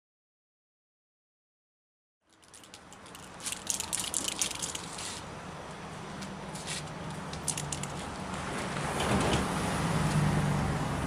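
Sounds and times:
gritty crackling: 2.3s - 5.3s.

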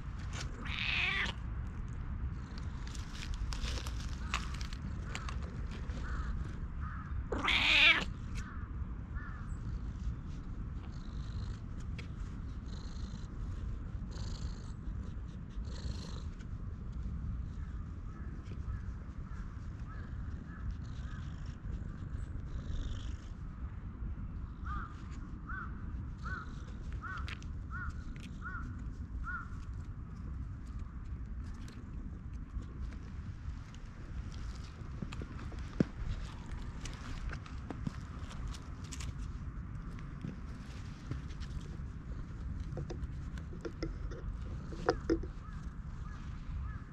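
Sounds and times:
cat meowing: 0.6s - 1.4s, 7.3s - 8.1s
cat purring: 10.4s - 16.5s, 20.1s - 23.4s, 40.0s - 46.3s.

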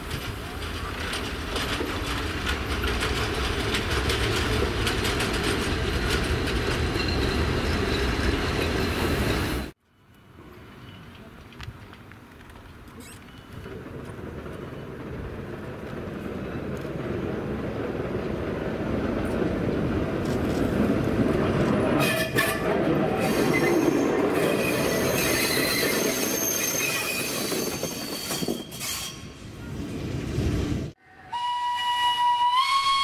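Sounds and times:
wheel flanges squealing: 22.0s - 29.4s.

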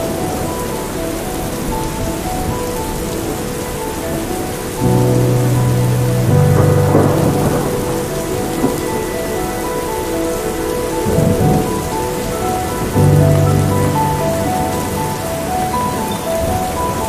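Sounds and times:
soft synth background music: 0.0s - 17.0s
steady rain: 0.0s - 17.0s
low rumble: 4.8s - 10.0s.

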